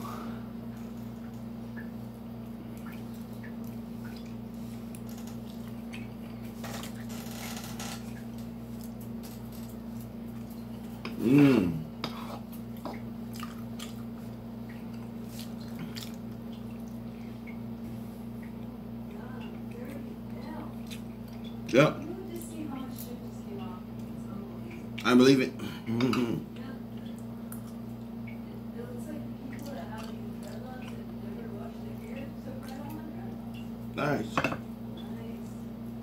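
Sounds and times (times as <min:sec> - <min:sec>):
steady low hum: 0:00.0 - 0:36.0
man chewing: 0:08.6 - 0:18.7
fork scraping a dish: 0:12.0 - 0:12.5.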